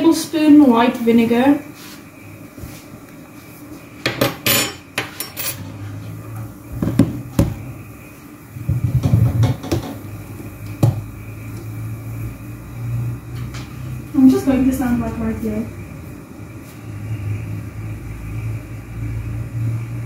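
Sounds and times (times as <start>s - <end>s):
metal spoons and dishes clinking: 4.3s - 5.7s.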